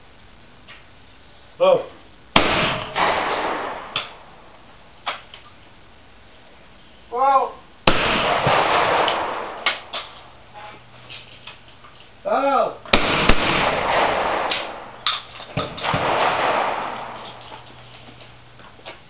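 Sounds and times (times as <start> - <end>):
shotgun shots echoing: 2.4 - 4.5, 7.9 - 10.4, 12.9 - 17.6
person shouting a call: 7.1 - 7.6.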